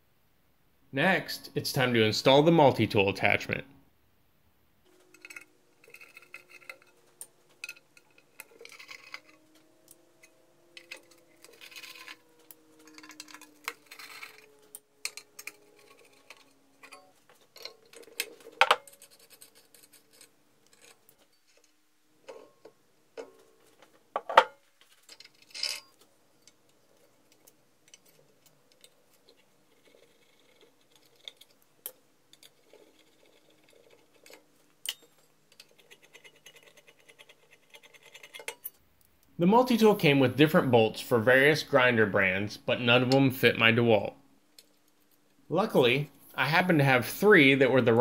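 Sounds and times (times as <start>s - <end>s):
metal parts clinking: 4.9s - 23.5s, 24.2s - 38.8s.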